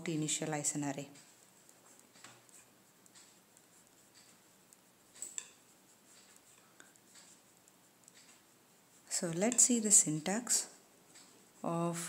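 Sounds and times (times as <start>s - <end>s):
ballpoint pen writing on paper: 1.3s - 9.7s.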